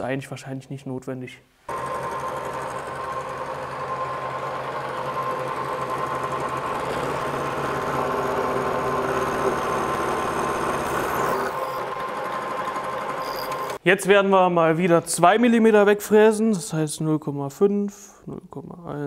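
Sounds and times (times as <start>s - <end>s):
milling machine hum: 1.7s - 13.8s
rough metal cutting noise: 1.7s - 13.8s.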